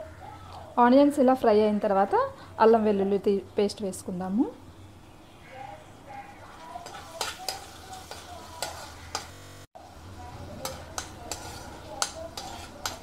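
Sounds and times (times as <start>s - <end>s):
onions sizzling in oil: 6.5s - 13.0s
spoon clinking against pan: 6.8s - 9.4s, 10.6s - 13.0s.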